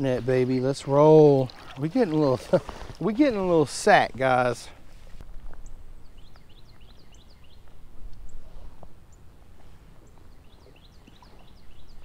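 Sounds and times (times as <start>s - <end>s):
small birds chirping: 5.6s - 8.5s, 10.0s - 12.0s.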